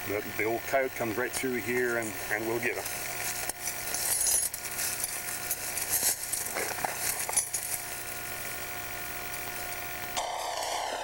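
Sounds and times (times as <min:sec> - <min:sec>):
faint steady hum: 0:00.0 - 0:11.0
dry leaves crackling and rustling: 0:01.6 - 0:08.1.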